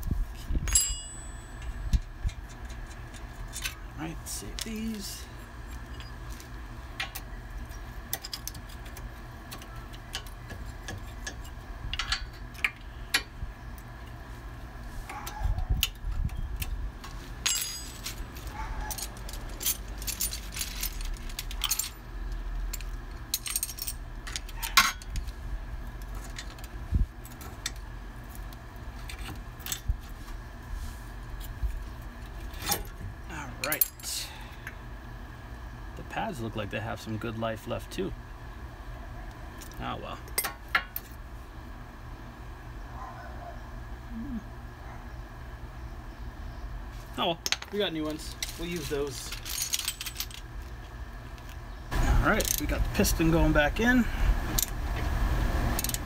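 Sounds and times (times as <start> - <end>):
low background hum: 0.0 - 56.0
metal tools clinking: 0.7 - 6.2, 17.4 - 25.3, 33.6 - 34.3, 47.4 - 50.5, 52.2 - 52.8.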